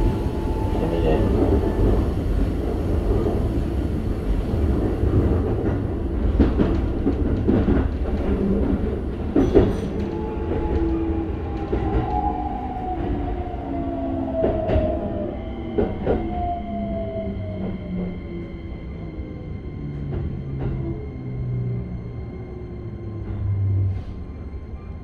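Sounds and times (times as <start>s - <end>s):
wheels rumbling on rail: 0.0s - 25.0s
clacks over rail joints: 5.4s - 10.9s.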